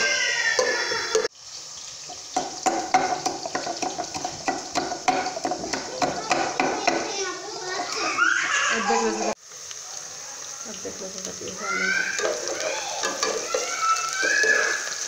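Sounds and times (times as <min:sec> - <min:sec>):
onions frying in oil: 0:00.0 - 0:15.0
metal spoon stirring pot: 0:02.1 - 0:07.2, 0:12.1 - 0:15.0
pestle pounding in clay mortar: 0:02.4 - 0:07.1.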